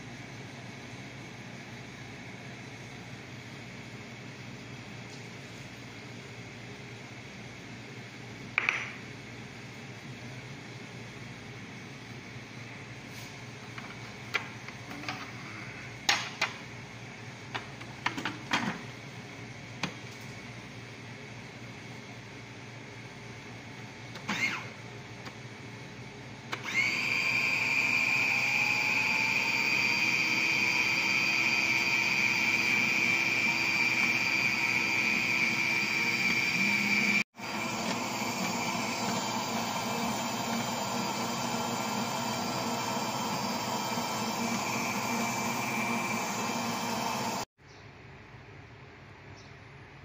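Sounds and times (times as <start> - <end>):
food processor motor whining: 24.2 - 24.8, 26.5 - 47.5.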